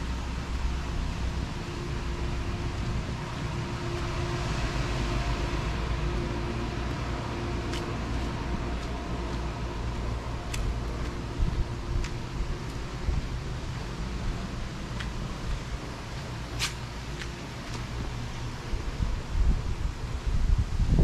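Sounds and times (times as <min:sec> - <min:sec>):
low rumble: 0:00.0 - 0:21.0
steady mechanical hum: 0:00.0 - 0:21.0.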